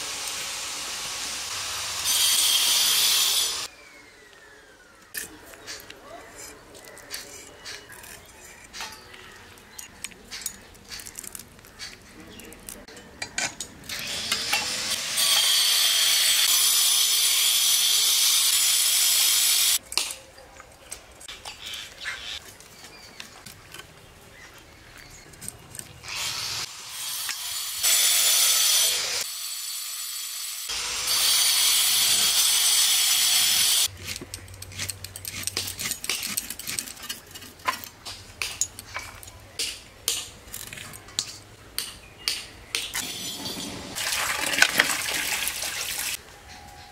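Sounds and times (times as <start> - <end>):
food sizzling in hot oil: 0.0 - 2.2
utensil clicking and scraping: 5.1 - 14.7, 24.6 - 26.1, 33.8 - 41.4.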